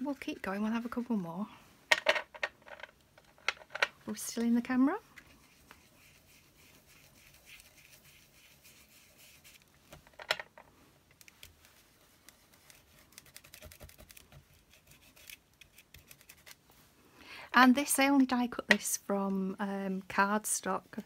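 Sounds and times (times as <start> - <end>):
paper scratching: 5.4 - 9.6, 12.3 - 16.6.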